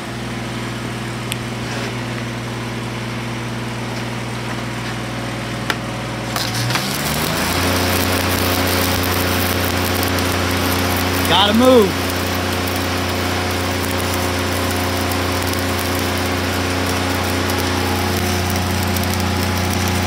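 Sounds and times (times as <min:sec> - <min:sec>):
welding machine drone: 0:04.0 - 0:20.0
welding arc crackling hiss: 0:06.3 - 0:20.0.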